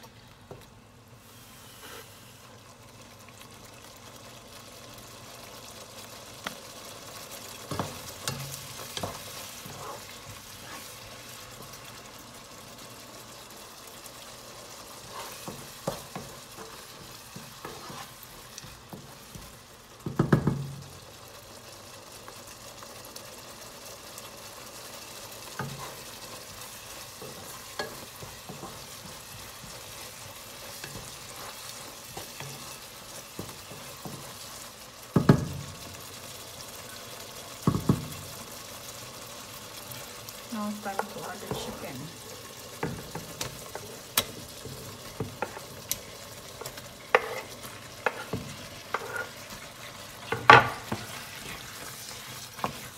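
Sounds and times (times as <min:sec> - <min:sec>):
sauce bubbling in a pan: 0:00.0 - 0:52.9
wooden spatula knocking pan: 0:20.0 - 0:20.9, 0:35.1 - 0:35.8, 0:37.6 - 0:38.2, 0:50.3 - 0:51.1.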